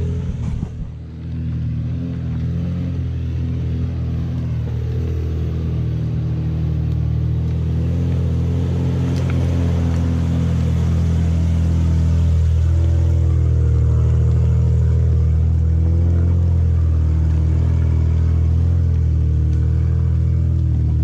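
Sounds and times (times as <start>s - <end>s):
engine running at low revs: 0.0s - 21.0s.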